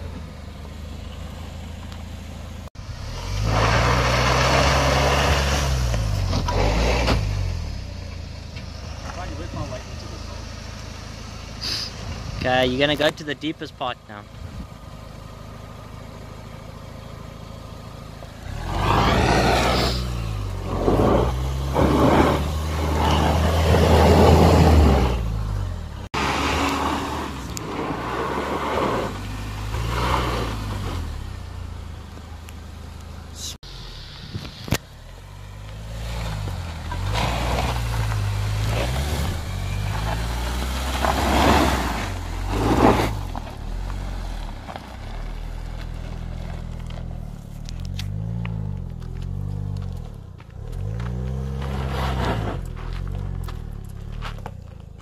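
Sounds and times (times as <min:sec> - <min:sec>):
wheel and ground noise: 0:00.0 - 0:55.0
engine revving under load: 0:02.7 - 0:08.0, 0:16.6 - 0:32.1, 0:33.4 - 0:54.6.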